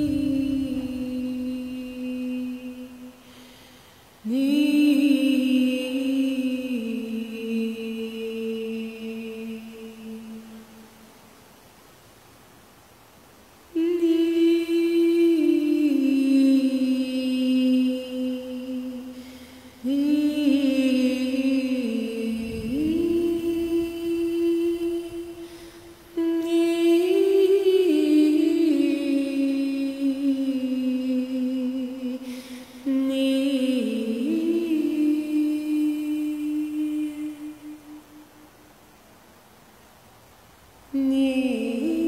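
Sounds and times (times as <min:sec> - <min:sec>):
wordless vocal humming: 0:13.7 - 0:38.3.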